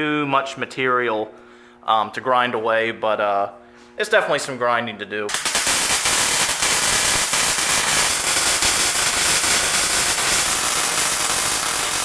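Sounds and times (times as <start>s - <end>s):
arc welding crackling sizzle: 5.3s - 12.0s.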